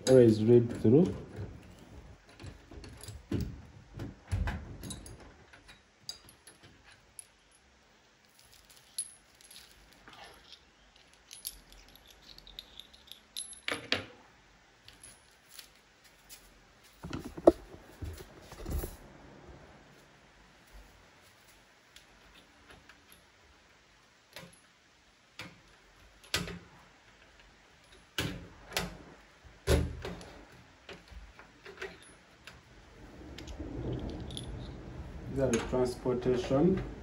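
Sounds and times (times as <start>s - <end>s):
wrench and bolts clinking: 8.2s - 14.0s.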